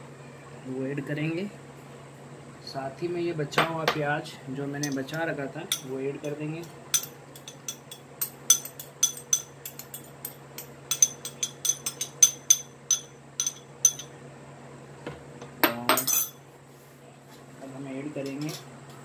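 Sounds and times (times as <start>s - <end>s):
spoon tapping glass bowl: 6.9s - 14.1s.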